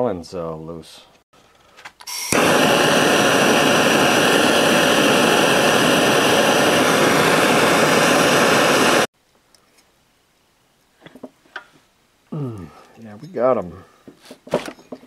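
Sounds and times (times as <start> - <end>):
gas torch hissing: 2.1 - 9.1.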